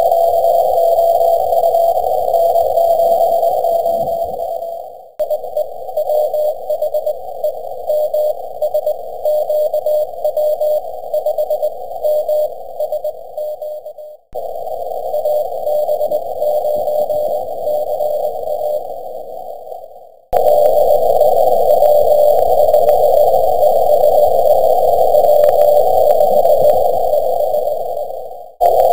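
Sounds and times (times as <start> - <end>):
radio receiver hiss: 0.5 - 4.8
morse code tone: 2.3 - 4.8.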